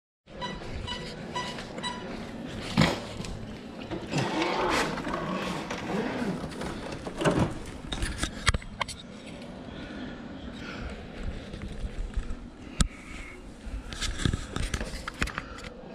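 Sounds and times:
short electronic beeps: 0.4s - 2.1s.

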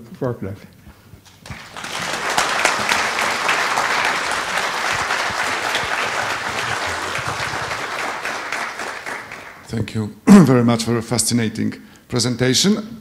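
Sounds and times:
audience applauding: 1.3s - 9.8s.

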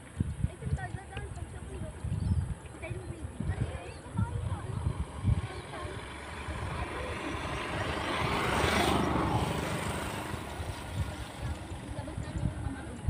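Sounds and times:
motor vehicle passing by: 1.8s - 13.0s.

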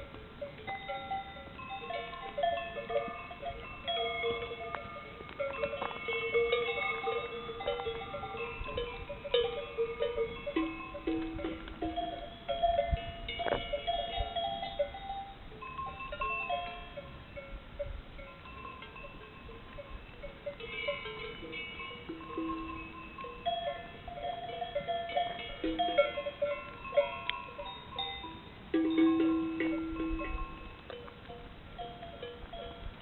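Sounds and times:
cowbells clanking: 0.0s - 33.0s.

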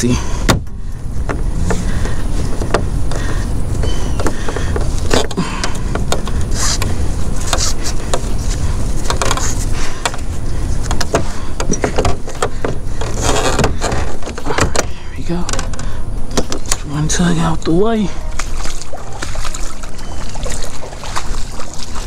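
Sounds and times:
steady low rumble: 0.0s - 22.0s
straps and buckles clicking: 1.2s - 16.9s.

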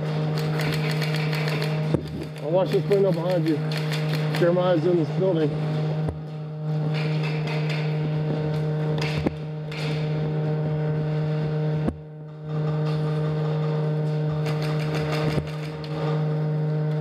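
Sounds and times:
steady low hum: 0.0s - 17.0s
sharp clicks: 0.4s - 4.5s.

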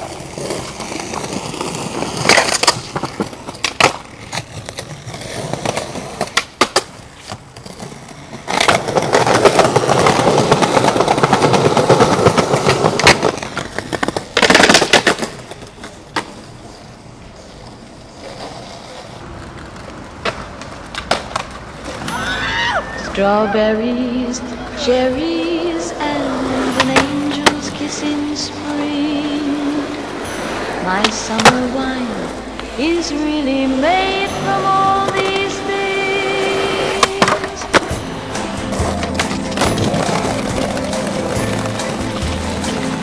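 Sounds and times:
skateboard pops and clacks: 0.0s - 7.7s, 8.4s - 16.4s, 19.4s - 22.1s
skateboard wheels rolling: 0.0s - 43.0s.

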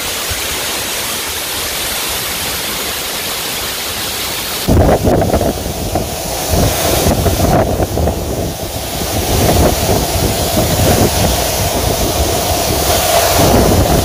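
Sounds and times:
waterfall rushing onto rocks: 0.0s - 14.0s
wind buffeting microphone: 4.6s - 14.0s.

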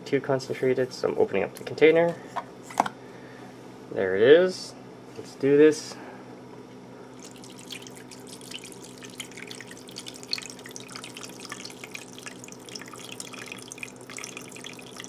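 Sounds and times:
broth pouring and splashing: 7.2s - 15.0s.

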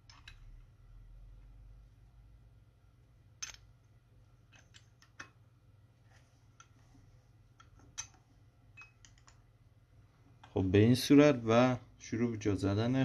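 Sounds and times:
low steady hum: 0.0s - 13.0s
small metallic clicks and taps: 7.6s - 9.4s.

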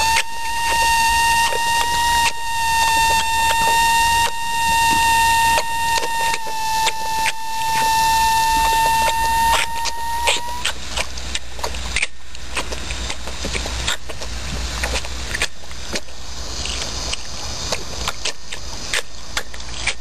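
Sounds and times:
steady high whistle: 0.0s - 10.8s
pig slurping water: 9.5s - 20.0s.

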